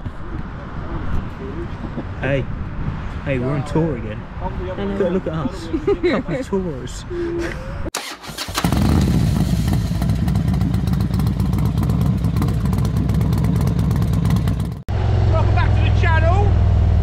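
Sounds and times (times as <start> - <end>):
motorcycle engine running: 8.3 - 15.9.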